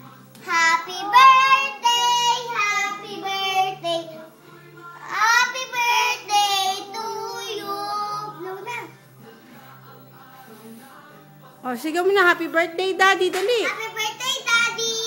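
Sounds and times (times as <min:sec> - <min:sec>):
girls singing: 0:00.0 - 0:11.4.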